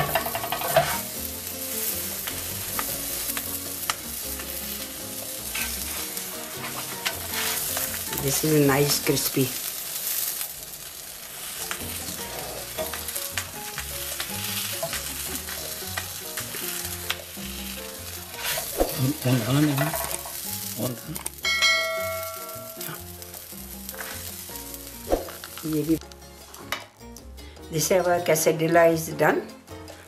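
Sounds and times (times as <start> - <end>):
spatula scraping griddle: 0.0 - 9.0, 10.0 - 21.4, 22.0 - 25.4
food sizzling on griddle: 0.0 - 27.0.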